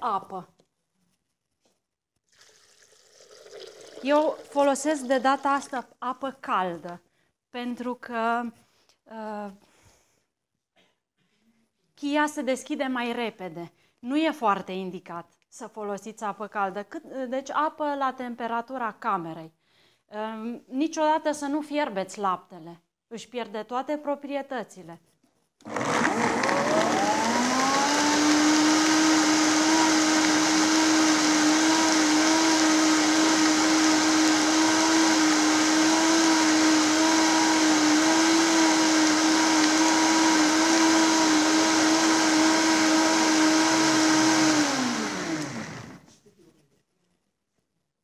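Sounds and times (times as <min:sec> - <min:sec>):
blender running: 0:25.6 - 0:46.1.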